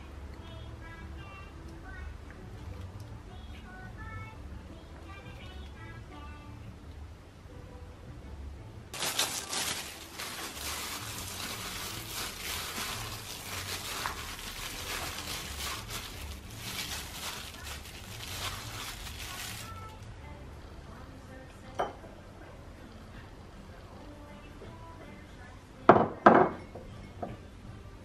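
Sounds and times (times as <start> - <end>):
gloved hand mixing food: 9.0 - 20.0.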